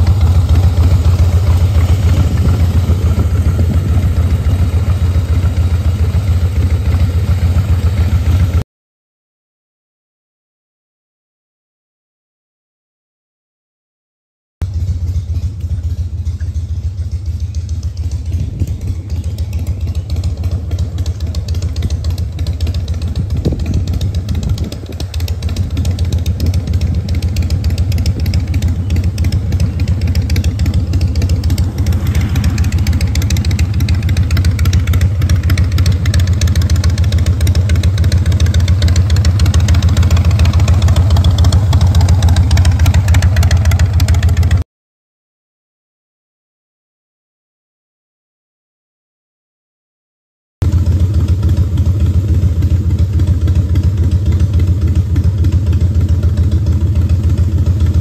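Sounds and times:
motorcycle engine idling: 0.0s - 8.6s, 14.6s - 44.6s, 50.6s - 58.0s.

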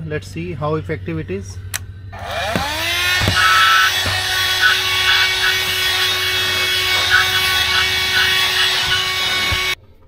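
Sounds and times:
handheld vacuum cleaner whining: 2.2s - 9.8s
vacuum nozzle rasping on carpet: 2.2s - 9.8s.

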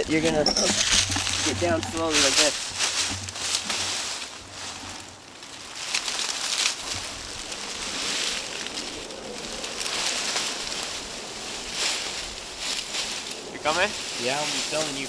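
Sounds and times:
dry leaves crunching underfoot: 0.0s - 15.0s.

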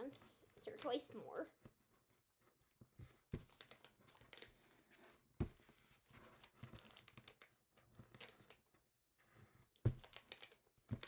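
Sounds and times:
paper rustling and crinkling: 1.6s - 8.7s.

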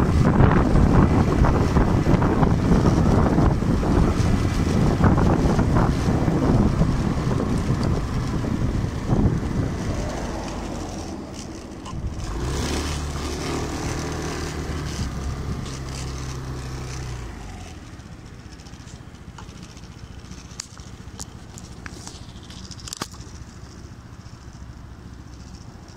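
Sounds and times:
scooter engine running: 0.0s - 25.9s
sharp clicks and knocks: 9.3s - 25.9s.

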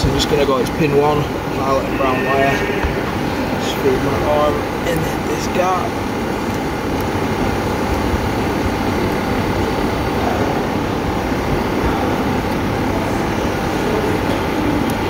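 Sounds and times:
faint steady whine: 0.0s - 7.7s.

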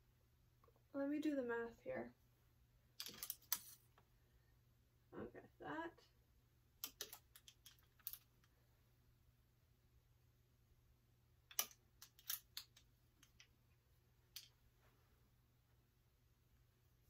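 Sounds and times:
plastic hangers clicking on metal rail: 11.5s - 13.5s.

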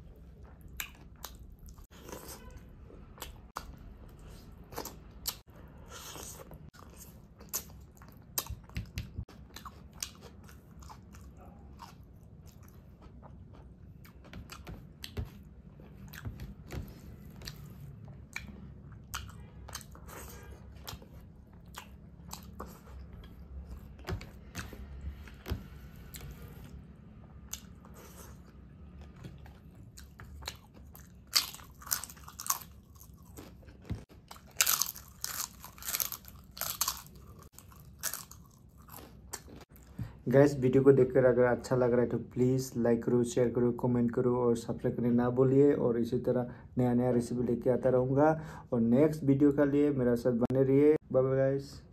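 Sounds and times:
person chewing crunchy food: 0.0s - 40.0s.

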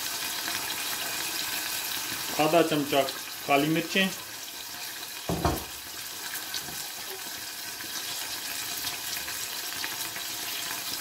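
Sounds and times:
oil and spices sizzling in saucepan: 0.0s - 11.0s
knock: 5.3s - 5.7s.

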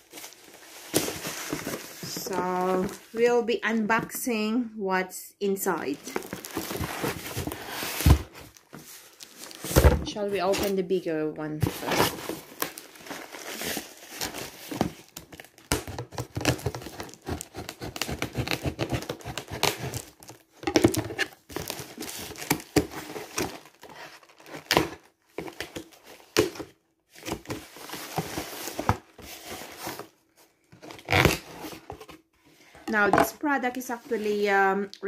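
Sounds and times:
cardboard crinkling and scraping: 0.0s - 4.0s, 5.8s - 10.9s, 11.6s - 33.1s
packing tape tearing: 15.4s - 25.0s.

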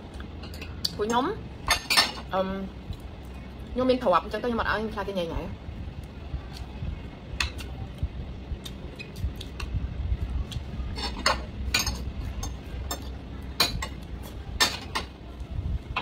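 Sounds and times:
low steady hum: 0.0s - 16.0s
metal spoon clinking on plates: 11.0s - 14.0s.

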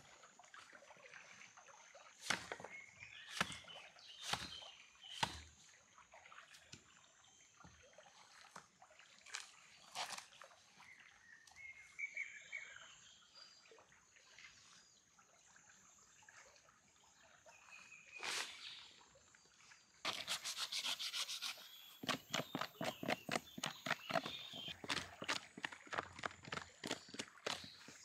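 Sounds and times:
rasping strokes: 20.1s - 25.4s.

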